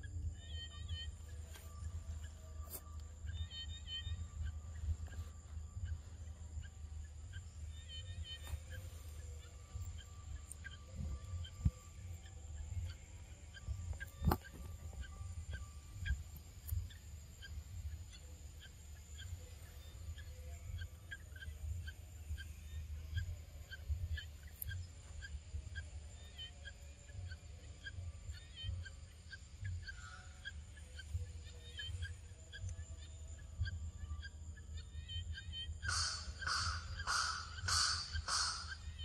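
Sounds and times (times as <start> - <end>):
short chirping call: 35.3 - 39.0
sharp click: 35.9 - 38.8.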